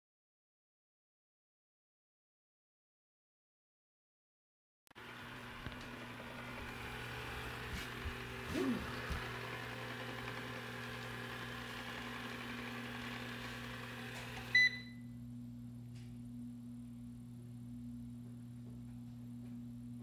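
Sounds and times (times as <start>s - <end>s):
robot vacuum whirring: 5.0s - 14.6s
low electrical hum: 5.0s - 20.0s
short high beep: 14.5s - 15.0s.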